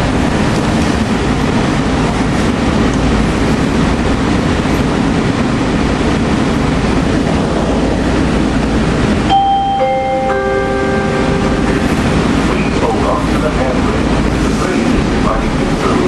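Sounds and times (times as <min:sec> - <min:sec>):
train car interior noise: 0:00.0 - 0:16.0
three-note descending chime: 0:09.3 - 0:12.2.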